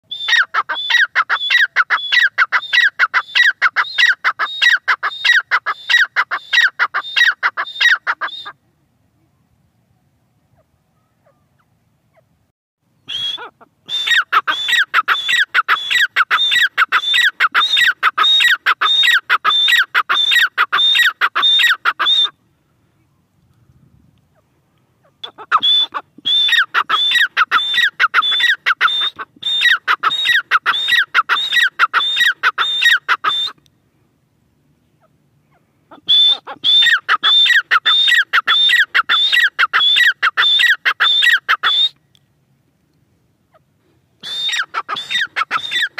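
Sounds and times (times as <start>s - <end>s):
francolin calling: 0.0s - 8.6s, 13.0s - 22.4s, 24.3s - 33.6s, 34.8s - 42.2s, 43.5s - 45.9s.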